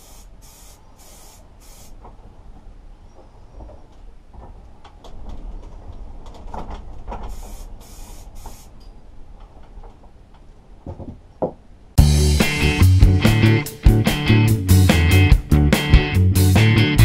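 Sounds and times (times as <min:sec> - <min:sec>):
spray paint can hissing: 0:00.0 - 0:02.0, 0:07.3 - 0:08.8.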